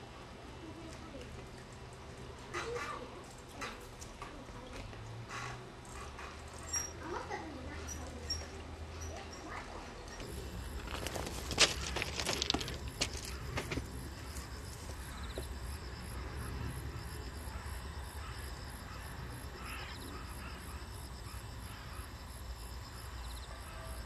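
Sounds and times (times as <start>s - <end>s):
insects chirping: 10.2s - 24.0s.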